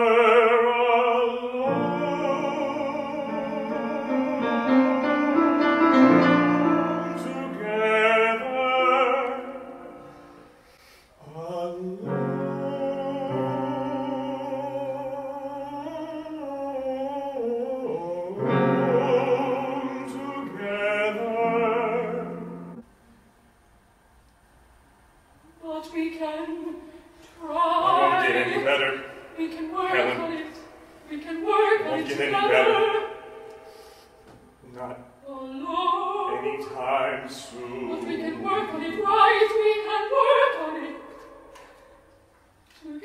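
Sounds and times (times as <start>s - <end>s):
soprano singing with vibrato: 0.0s - 10.1s, 11.4s - 22.8s, 25.5s - 33.6s, 35.2s - 42.0s
baritone singing: 0.0s - 10.2s, 11.2s - 22.8s, 27.4s - 33.6s, 34.7s - 41.6s
grand piano accompaniment: 0.0s - 10.5s, 12.0s - 15.0s, 18.2s - 22.9s.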